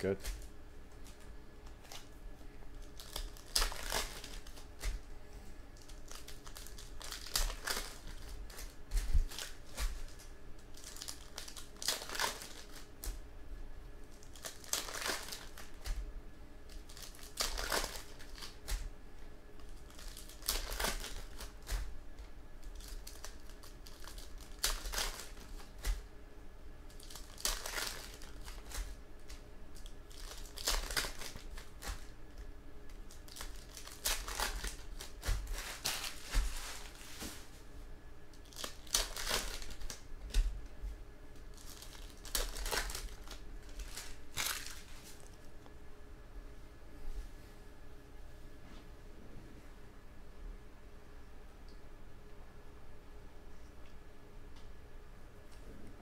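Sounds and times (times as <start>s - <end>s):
foil wrappers tearing and crinkling: 2.8s - 5.1s, 5.8s - 13.2s, 14.0s - 16.0s, 16.7s - 18.9s, 19.6s - 22.0s, 22.6s - 26.1s, 26.9s - 37.5s, 38.4s - 40.5s, 41.4s - 45.4s.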